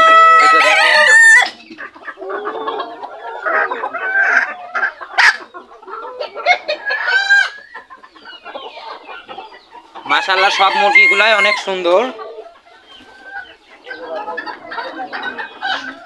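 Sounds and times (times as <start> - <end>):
rooster crowing: 0.0 - 1.6, 10.1 - 11.8
hens clucking: 0.0 - 16.0.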